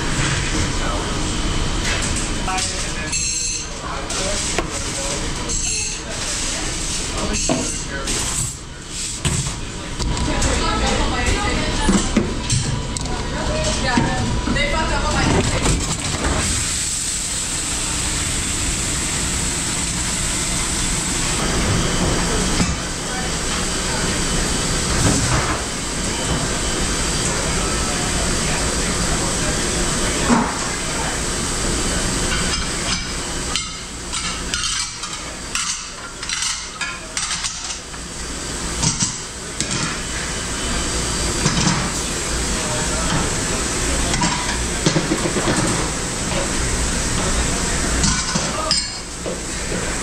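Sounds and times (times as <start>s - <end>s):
kitchen machinery hum: 0.0s - 50.0s
dishwasher water spraying: 13.8s - 34.6s.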